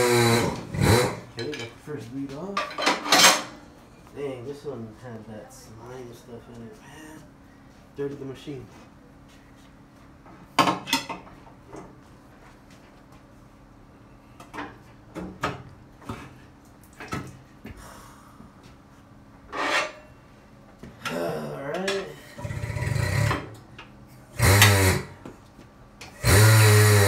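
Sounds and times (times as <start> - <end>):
rattling scrape: 19.5 - 20.1.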